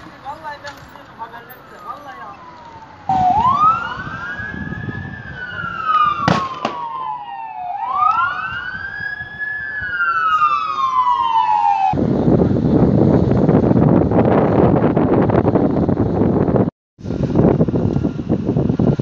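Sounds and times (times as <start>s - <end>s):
fire engine siren wailing: 1.2s - 12.3s
sharp pops: 6.2s - 7.0s.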